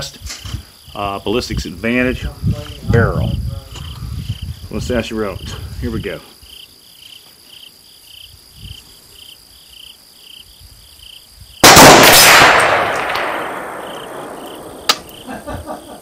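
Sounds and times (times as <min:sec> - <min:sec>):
insects chirping: 0:00.0 - 0:16.0
gunshot echoing: 0:11.6 - 0:15.3.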